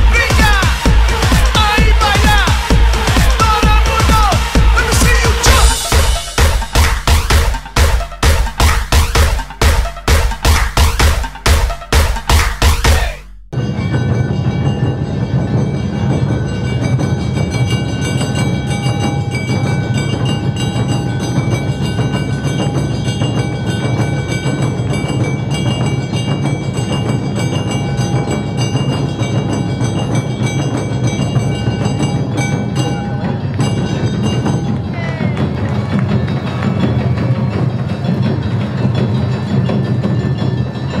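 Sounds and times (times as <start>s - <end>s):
drums: 0.0s - 41.0s.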